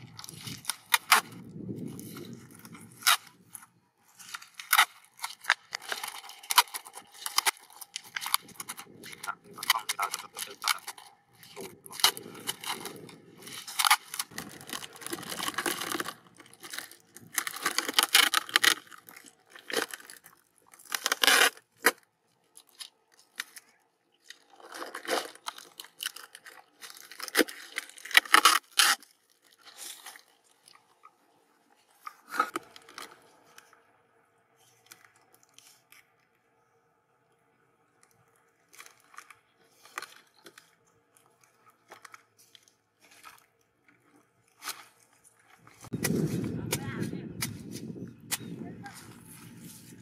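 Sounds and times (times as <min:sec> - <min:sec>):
plastic crinkling and scraping: 0:00.0 - 0:36.7, 0:38.0 - 0:50.0
packing tape pulled off roll: 0:04.2 - 0:18.9, 0:20.8 - 0:22.0, 0:24.7 - 0:30.2.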